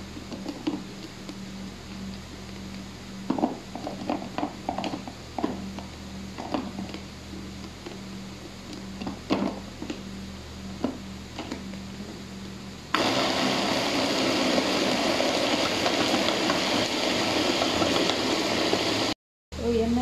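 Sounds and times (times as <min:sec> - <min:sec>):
food chopper motor running: 0:12.9 - 0:19.2.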